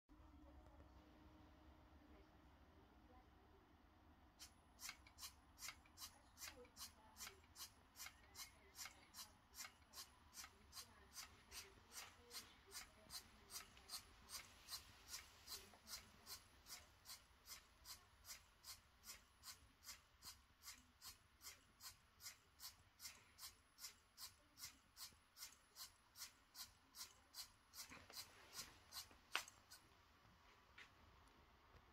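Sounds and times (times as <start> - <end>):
rhythmic mechanical clicking: 4.4 - 29.9.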